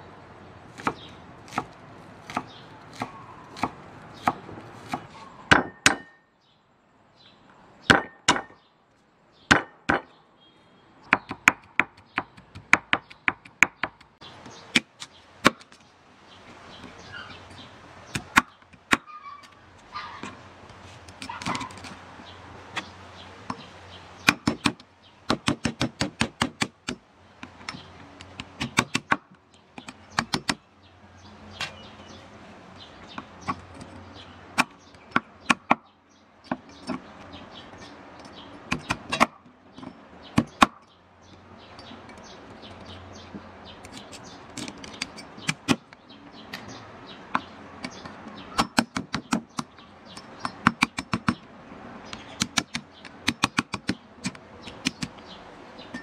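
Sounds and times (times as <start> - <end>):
cleaver chopping on wooden board: 0.7 - 6.2, 7.9 - 8.6, 9.5 - 10.1, 11.1 - 15.8, 18.1 - 19.1, 24.2 - 27.0, 27.7 - 30.6, 33.1 - 35.8, 38.6 - 40.8, 47.3 - 51.4, 52.2 - 55.2.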